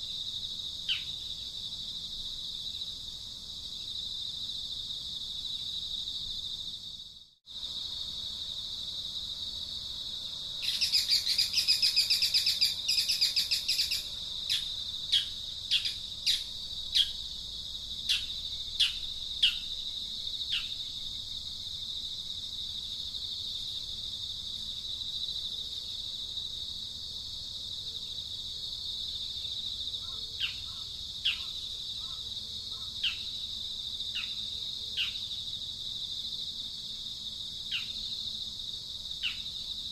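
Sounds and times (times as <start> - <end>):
sharp bird chirps: 10.6 - 17.2, 18.1 - 19.7, 32.8 - 33.4
high-pitched insect drone: 10.6 - 21.3.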